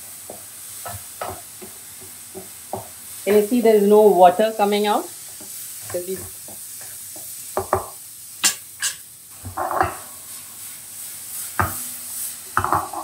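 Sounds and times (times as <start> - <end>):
mushrooms and onions sizzling in pan: 0.0 - 13.0
wooden spatula scraping pan: 9.5 - 10.0, 12.6 - 13.0.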